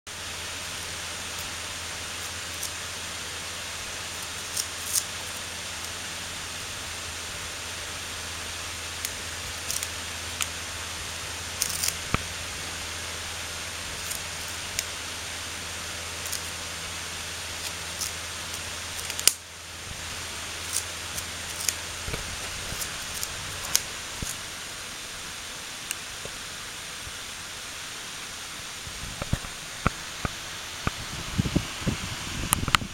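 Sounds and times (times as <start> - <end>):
desk fan hiss and hum: 0.1 - 32.9
paws crackling on packing tape: 0.7 - 2.9, 4.1 - 6.0, 9.0 - 10.6, 11.5 - 12.3, 13.9 - 14.9, 16.2 - 16.6, 17.5 - 19.4, 20.5 - 24.4.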